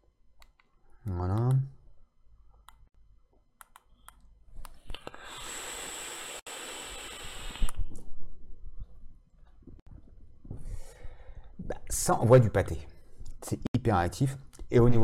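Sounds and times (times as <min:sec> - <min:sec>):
vape coil hissing: 0:05.0 - 0:07.8.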